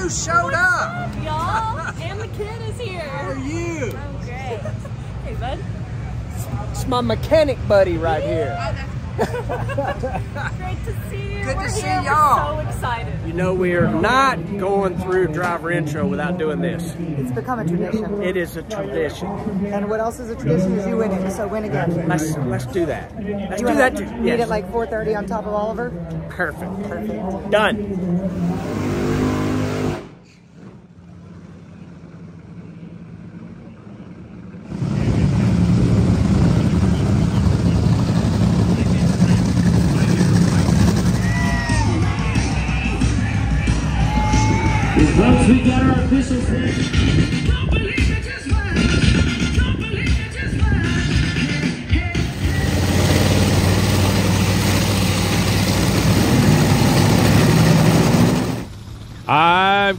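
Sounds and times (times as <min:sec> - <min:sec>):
engine hum: 0:00.0 - 0:59.9
loud low engine rumble: 0:27.2 - 0:47.6, 0:51.1 - 0:59.9.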